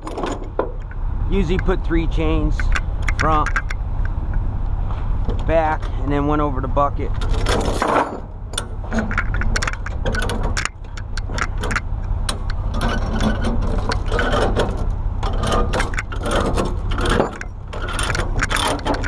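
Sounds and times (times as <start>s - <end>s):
steady low rumble: 0.0s - 19.0s
chain clinking and rattling: 7.2s - 19.0s.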